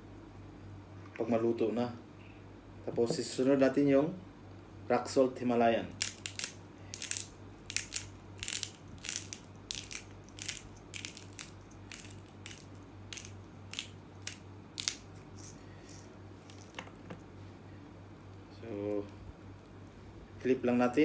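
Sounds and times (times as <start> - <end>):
salt grinder crunching: 5.9 - 16.8.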